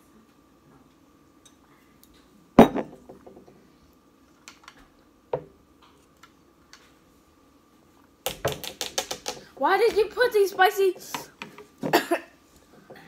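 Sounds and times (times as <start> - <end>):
objects knocked on stone tabletop: 2.6 - 3.3.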